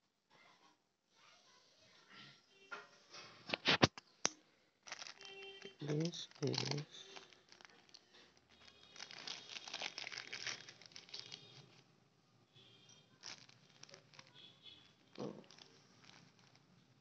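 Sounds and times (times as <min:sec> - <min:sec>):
paper packet crinkling: 0:04.8 - 0:11.8, 0:13.1 - 0:16.8.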